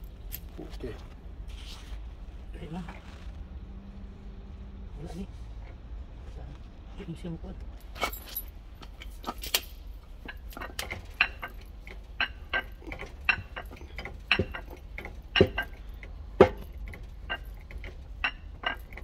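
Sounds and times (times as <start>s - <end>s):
metal clicks and clinks: 7.8s - 19.0s
heavy knocks: 10.5s - 19.0s.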